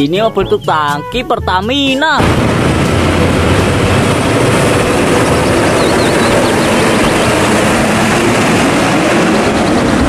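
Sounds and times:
trucks driving past: 2.2s - 10.0s.

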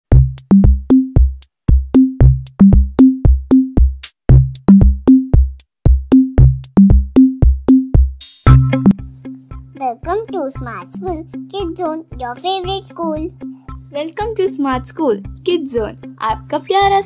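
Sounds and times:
fast electronic drum beat: 0.1s - 9.0s.

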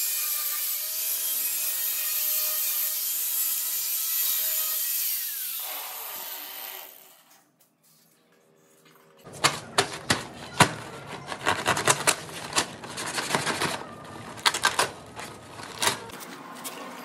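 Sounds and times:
plastic sack rustling and crackling: 9.3s - 16.6s.

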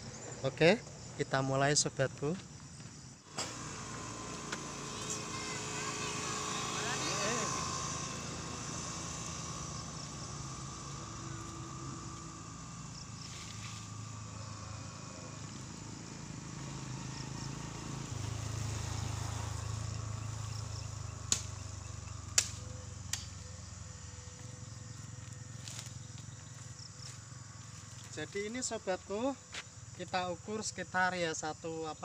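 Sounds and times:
steady low hum: 0.0s - 32.0s
bamboo dragged through dry grass: 13.2s - 13.9s
dry bamboo cracking: 22.3s - 23.4s.

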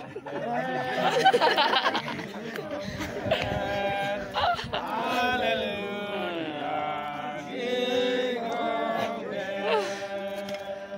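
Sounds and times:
voices singing a hymn: 0.0s - 10.9s.

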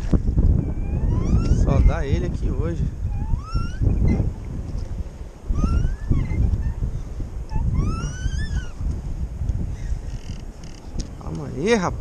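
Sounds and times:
wind buffeting microphone: 0.0s - 12.0s
short rising whistles: 3.1s - 4.2s, 5.5s - 6.8s, 7.5s - 8.8s.

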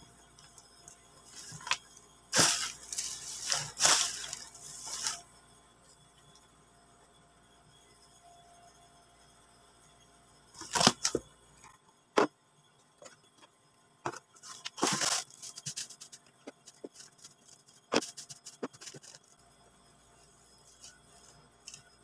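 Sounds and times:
plastic crinkling rustle: 1.2s - 5.2s, 14.4s - 19.4s
plastic containers clattering: 2.4s - 5.2s, 14.1s - 17.3s.

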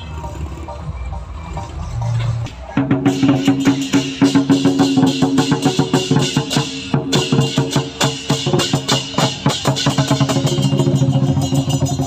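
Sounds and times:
hand cymbals clashing: 0.2s - 12.0s
barrel drum beating: 2.8s - 12.0s.

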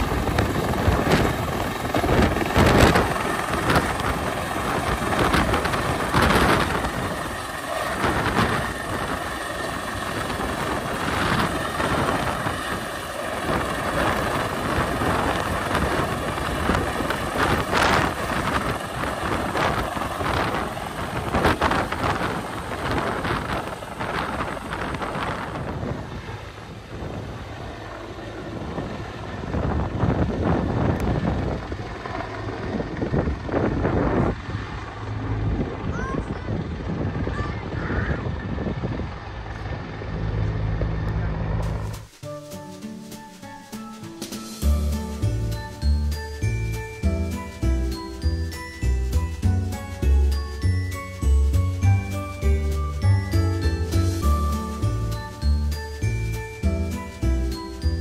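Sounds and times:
wind buffeting microphone: 0.0s - 42.1s
helicopter rotor and turbines: 0.0s - 58.0s.

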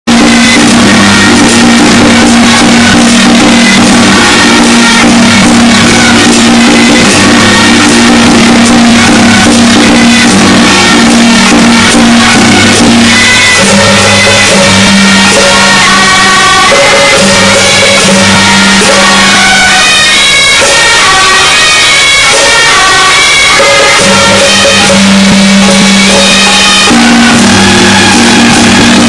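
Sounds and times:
clattering percussion beat: 0.0s - 29.0s
held pitched notes: 0.1s - 29.0s.

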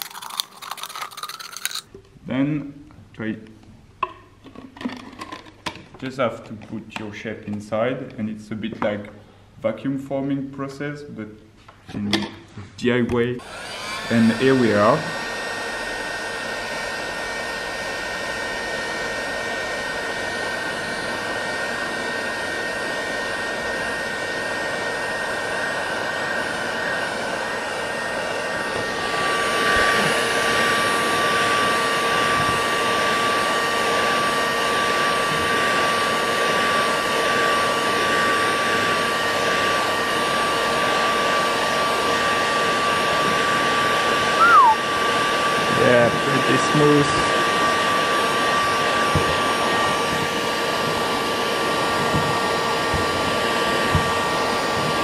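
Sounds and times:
heat gun blowing: 13.4s - 55.0s.

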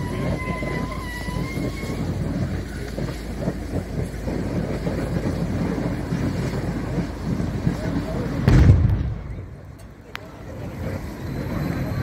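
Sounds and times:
fire rumbling and crackling: 0.0s - 12.0s.

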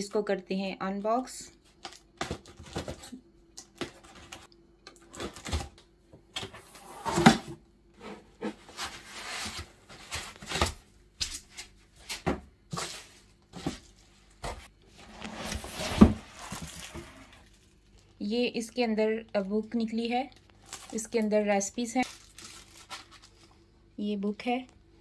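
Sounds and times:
packaging rustles and knocks: 12.1s - 17.7s.

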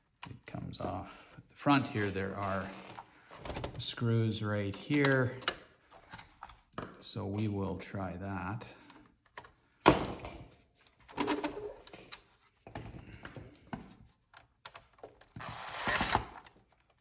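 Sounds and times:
cordless drill backing out screw: 15.4s - 16.6s.

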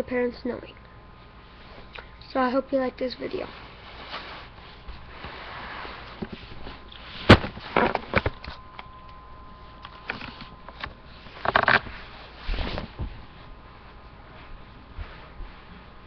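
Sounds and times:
camera handling knocks and bumps: 7.3s - 8.5s, 10.1s - 11.9s.

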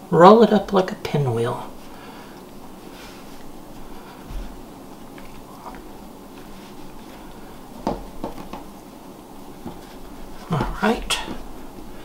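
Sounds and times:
hands rolling dough: 0.3s - 12.0s
soft bump on wooden board: 7.8s - 8.7s.

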